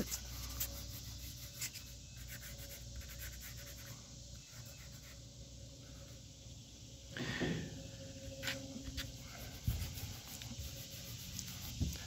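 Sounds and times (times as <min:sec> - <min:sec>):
fingertip rubbing on metal: 0:00.0 - 0:03.9, 0:09.0 - 0:12.0.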